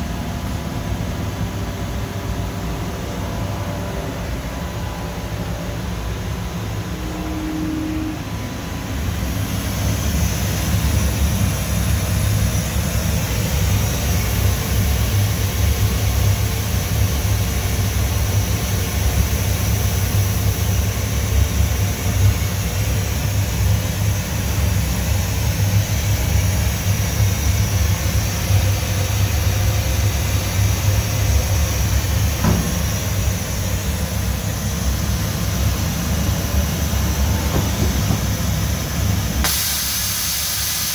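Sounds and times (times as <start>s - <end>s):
machinery hum with hiss: 0.0s - 40.9s.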